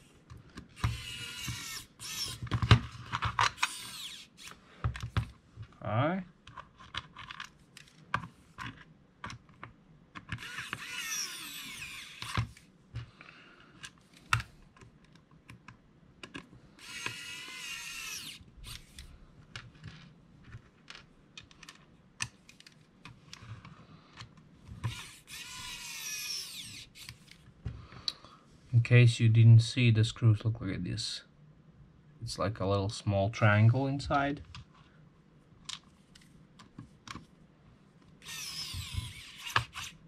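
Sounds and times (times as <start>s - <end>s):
electric screwdriver whirring: 0.8s - 2.5s, 3.5s - 4.6s, 10.4s - 12.4s, 16.8s - 19.0s, 24.8s - 27.2s, 38.2s - 40.0s.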